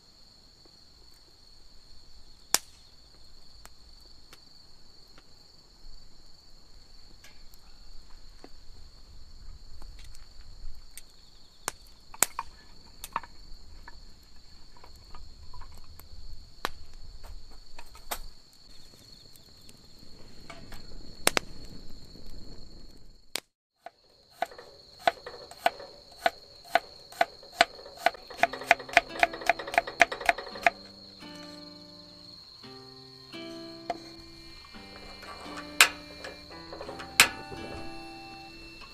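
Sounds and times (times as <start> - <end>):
sharp knocks and clicks: 24.4 - 31.0, 34.8 - 38.4
regular ticking: 24.4 - 32.2, 33.4 - 38.9.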